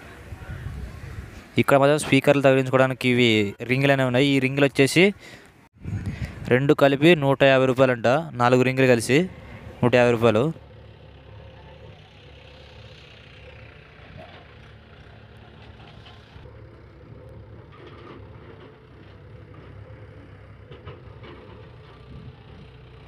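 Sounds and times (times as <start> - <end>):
tractor engine running: 5.5 - 23.0.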